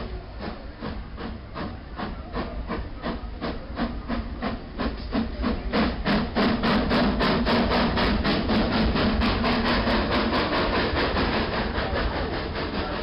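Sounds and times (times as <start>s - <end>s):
steam locomotive chuffing: 0.0s - 13.0s.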